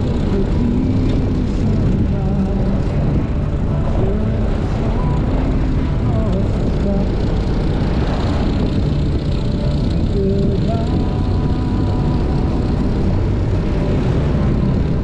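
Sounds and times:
motorcycle engine running: 0.0 - 15.0
wind rush over microphone: 0.0 - 15.0.

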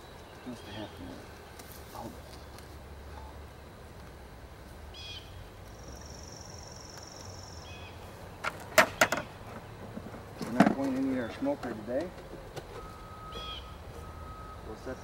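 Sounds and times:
birds calling: 0.0 - 15.0
equipment knocks and clatters: 8.4 - 12.9
bird high trill: 13.3 - 13.8.

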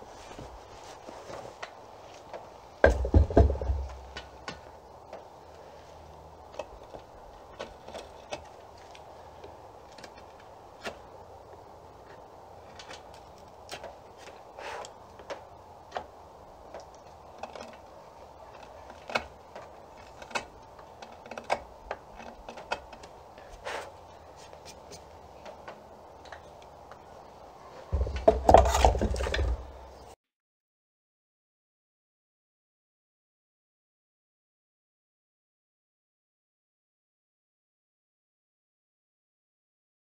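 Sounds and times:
knife blade scraping wood: 28.3 - 29.6.

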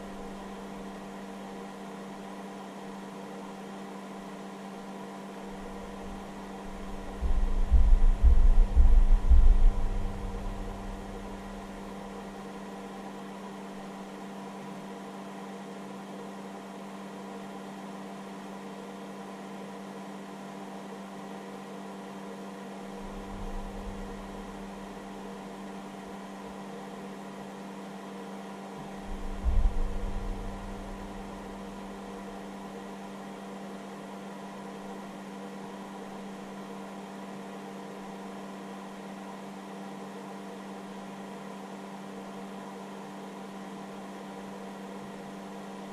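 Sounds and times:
electrical hum: 0.0 - 3.7, 4.3 - 15.6, 22.5 - 26.9, 27.5 - 36.8
cooling fan whirr: 0.0 - 45.9
low rumble: 7.1 - 11.2, 29.1 - 31.4.

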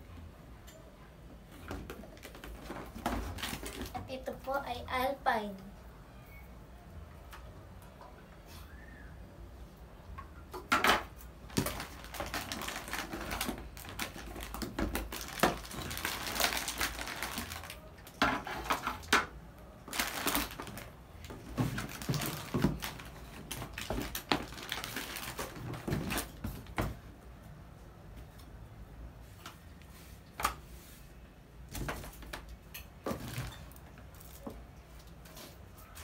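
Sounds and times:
plastic packets and cardboard rustling: 1.5 - 4.3, 10.8 - 27.2, 31.6 - 36.0.

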